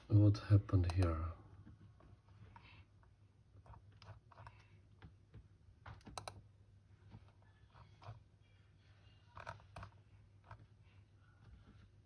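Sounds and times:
computer clicks: 6.0s - 6.4s.

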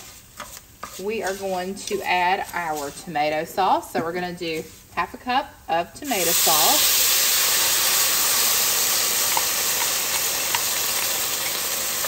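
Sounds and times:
sauce sizzling in hot oil: 6.0s - 12.0s.

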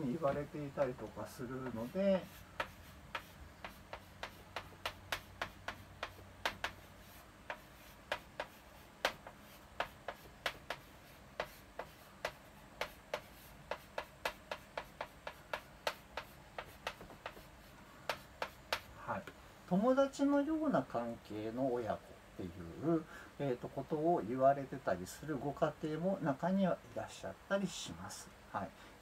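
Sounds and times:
chalk tapping on blackboard: 0.0s - 19.4s.

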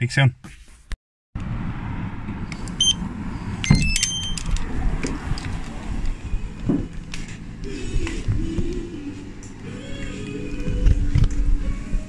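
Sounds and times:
short electronic beeps: 2.8s - 3.0s, 3.6s - 4.4s.

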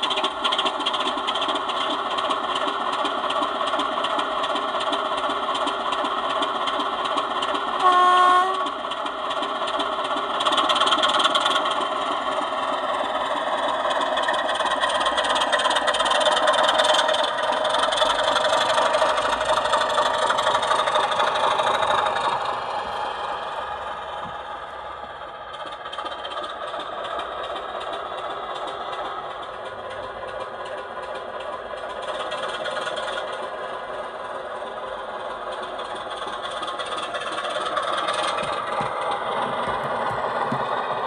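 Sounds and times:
diesel engine from small speaker: 0.0s - 41.0s
locomotive horn note: 7.8s - 8.7s.

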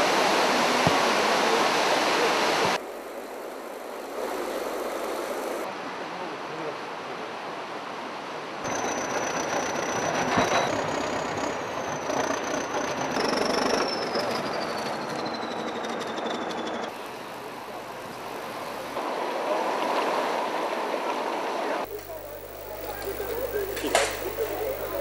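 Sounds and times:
high metallic whine: 8.7s - 19.0s, 21.8s - 25.0s
tractor engine running: 8.7s - 19.0s, 21.8s - 25.0s.

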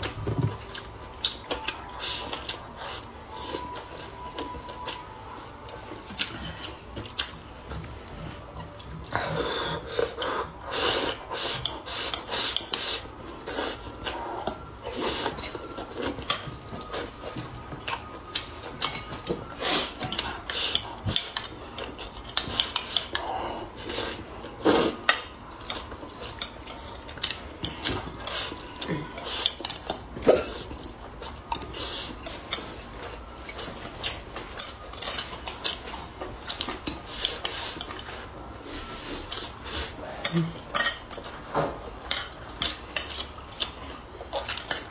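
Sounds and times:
chewing and mouth sounds: 38.9s - 44.9s.

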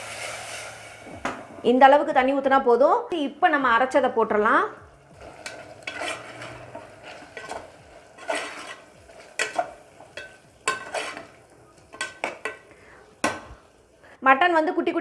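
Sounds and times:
metal spoon scraping pot: 5.2s - 12.6s.

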